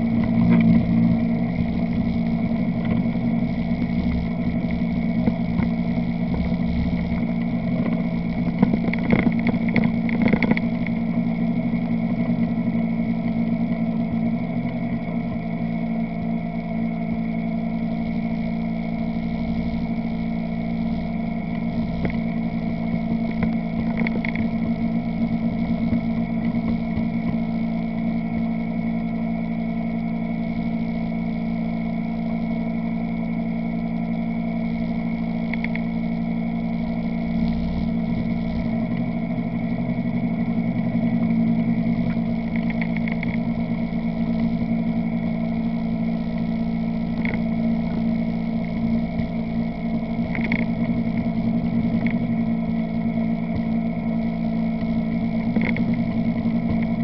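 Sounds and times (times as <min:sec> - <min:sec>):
atv engine running: 0:00.0 - 0:11.3, 0:31.8 - 0:57.0.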